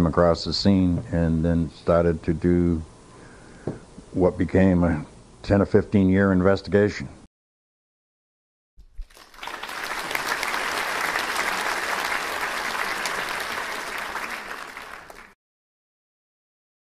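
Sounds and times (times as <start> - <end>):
audience applauding: 9.0 - 15.4.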